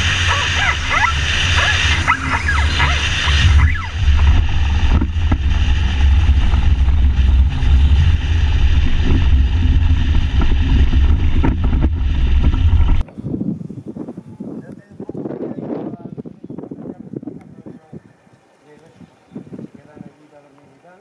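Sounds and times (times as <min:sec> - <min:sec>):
aircraft engine droning: 0:00.0 - 0:13.0
wind buffeting microphone: 0:00.0 - 0:20.5.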